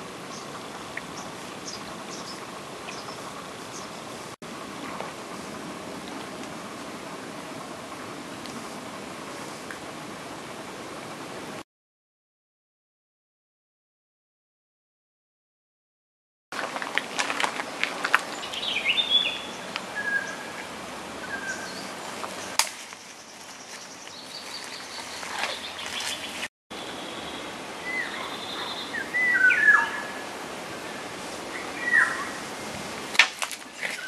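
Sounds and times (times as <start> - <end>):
steady outdoor hiss: 0.0 - 11.6, 16.6 - 34.0
birds chirping and calling: 0.2 - 5.0, 17.9 - 32.5.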